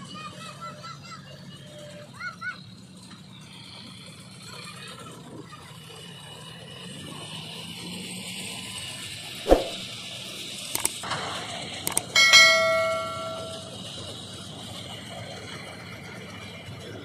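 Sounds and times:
notification bell ding: 11.9s - 13.8s.

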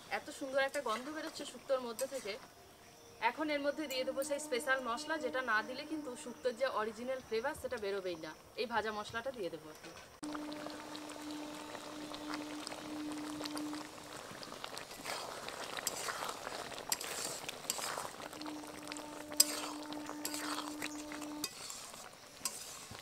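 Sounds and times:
spatula scraping metal pan: 0.7s - 2.4s, 14.9s - 23.0s
stew simmering: 10.2s - 23.0s.

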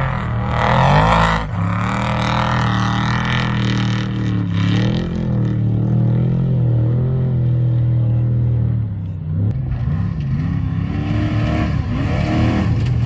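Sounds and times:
vehicle engine droning: 0.0s - 13.0s.

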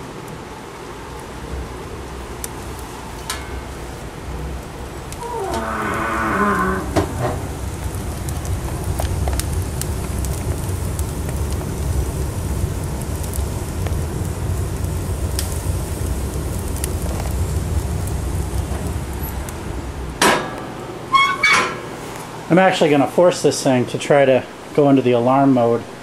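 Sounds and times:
wood fire rumbling: 0.0s - 25.3s
logs crackling and popping: 1.0s - 20.2s.

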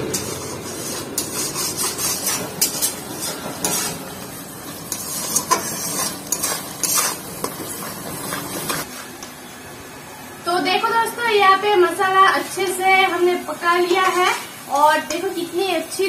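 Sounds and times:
spatula scraping a metal pan: 0.0s - 9.1s
sizzling in oil: 0.0s - 9.5s, 11.9s - 16.0s.

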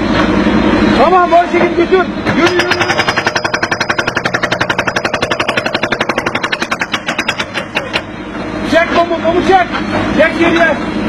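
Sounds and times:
excavator mechanical rattle: 2.2s - 8.2s.

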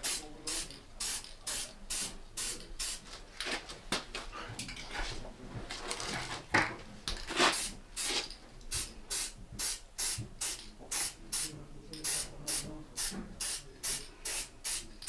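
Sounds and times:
spray can hissing: 0.0s - 3.0s, 7.5s - 15.0s.

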